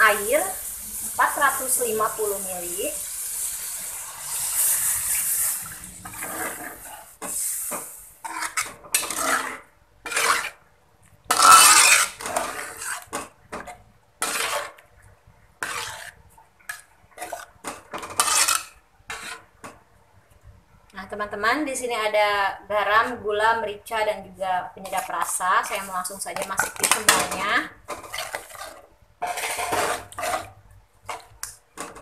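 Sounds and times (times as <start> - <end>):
metal spoon scraping wok: 1.2 - 10.6, 11.3 - 14.8, 15.6 - 19.5, 24.8 - 32.0
water pouring into wok: 3.0 - 6.8.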